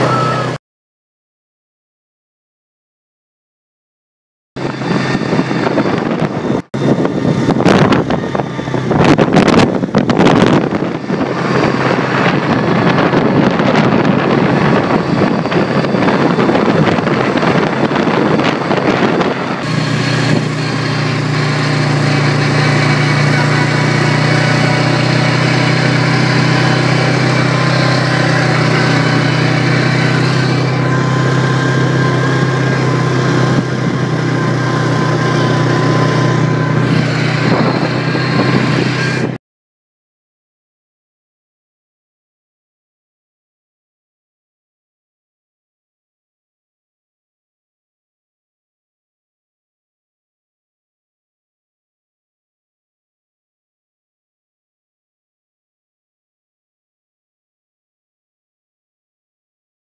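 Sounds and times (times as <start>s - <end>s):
atv engine running: 0.0s - 0.6s, 4.6s - 39.4s.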